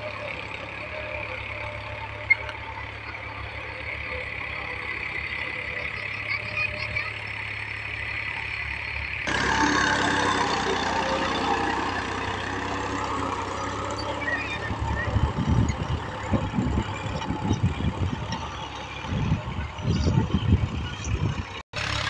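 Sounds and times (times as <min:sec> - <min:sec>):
tractor diesel engine running: 0:00.0 - 0:22.0
wind buffeting microphone: 0:14.6 - 0:21.6.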